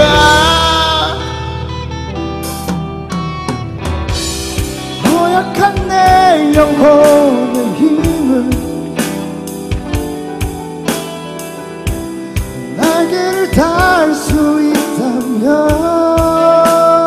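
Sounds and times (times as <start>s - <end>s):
man singing rock ballad: 0.0s - 2.3s, 4.0s - 9.9s, 12.2s - 17.0s
drums keeping steady beat: 0.0s - 17.0s
live band accompaniment: 0.0s - 17.0s.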